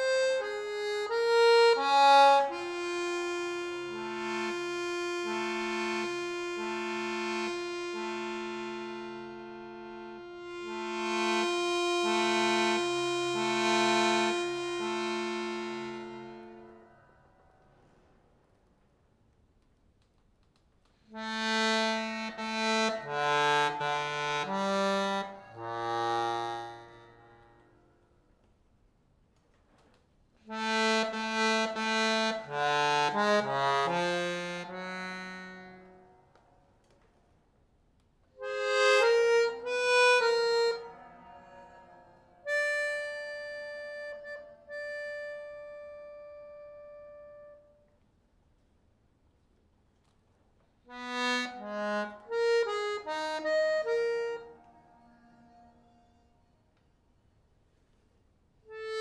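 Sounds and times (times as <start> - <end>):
button accordion playing: 0.0 - 16.8, 21.1 - 27.7, 30.5 - 36.4, 38.4 - 47.8, 50.9 - 56.3, 58.7 - 59.0.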